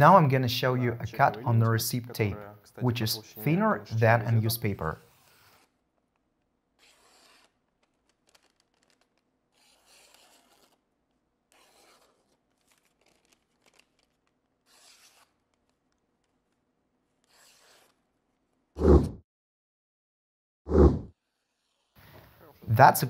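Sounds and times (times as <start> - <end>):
knife slicing through paper: 5.1 - 5.8, 6.8 - 16.5, 17.1 - 18.5.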